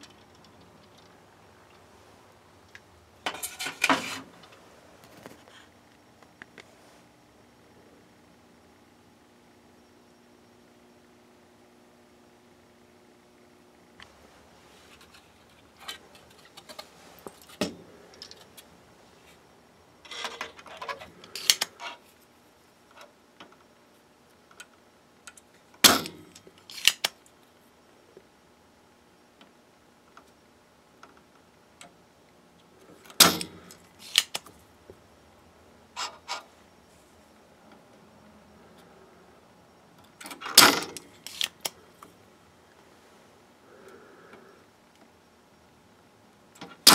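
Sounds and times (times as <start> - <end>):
tools clicking and rattling on metal: 3.2 - 4.5, 15.0 - 18.7, 20.0 - 22.0, 40.0 - 41.7.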